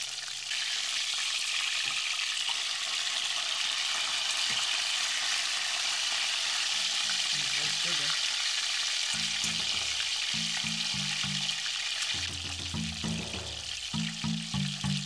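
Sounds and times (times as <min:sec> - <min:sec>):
fish sizzling in hot oil: 0:00.0 - 0:15.0.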